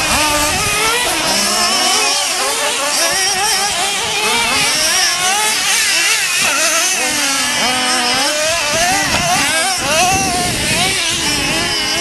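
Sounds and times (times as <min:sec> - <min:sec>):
model car motors revving: 0:00.0 - 0:12.0.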